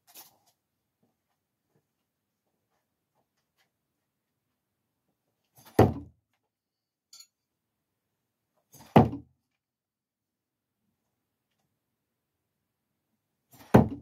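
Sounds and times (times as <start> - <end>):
thrown knives thunking into target: 13.5 - 14.0.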